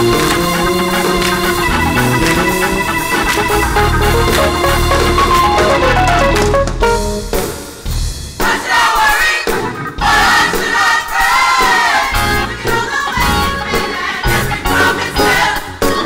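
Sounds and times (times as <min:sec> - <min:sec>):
gospel choir singing with band: 0:00.0 - 0:06.4, 0:07.9 - 0:16.0.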